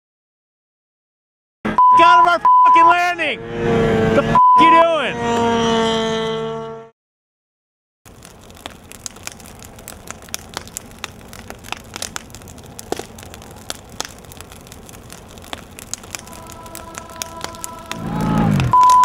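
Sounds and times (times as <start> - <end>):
large fire crackling and popping: 8.1 - 19.0.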